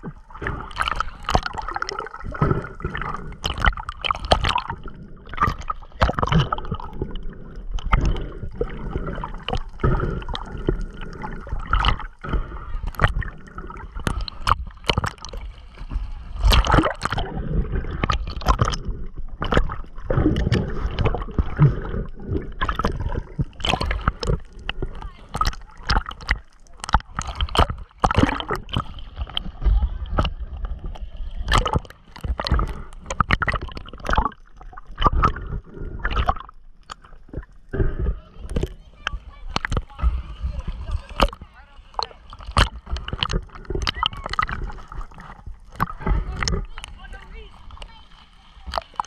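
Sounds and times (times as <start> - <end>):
swimming splashes and knocks: 0.0 - 49.0
water sloshing and gurgling: 0.0 - 49.0.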